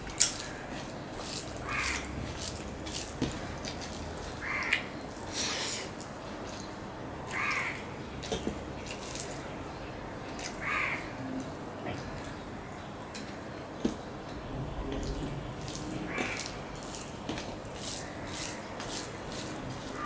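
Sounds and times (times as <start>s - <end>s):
chewing: 0.0s - 6.7s, 13.2s - 20.0s
fingers mixing rice on a plate: 0.0s - 9.4s, 13.1s - 20.0s
crow cawing: 1.6s - 2.2s, 4.4s - 4.9s, 7.3s - 7.9s, 10.6s - 11.2s, 16.0s - 16.6s.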